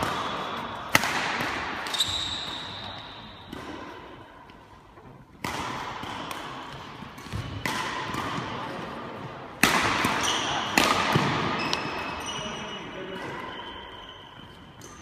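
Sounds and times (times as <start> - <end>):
racket striking shuttlecock: 0.0 - 4.3, 5.3 - 12.2
shoe squeaking on floor: 1.9 - 3.4, 11.5 - 15.0.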